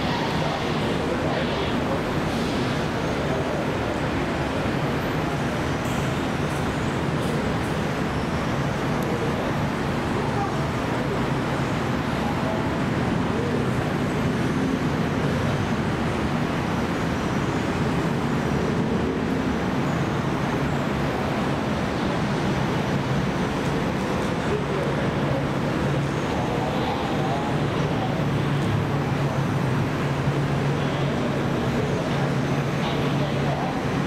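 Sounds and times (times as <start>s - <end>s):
city traffic noise: 0.0s - 34.0s
people mover train humming: 0.0s - 34.0s.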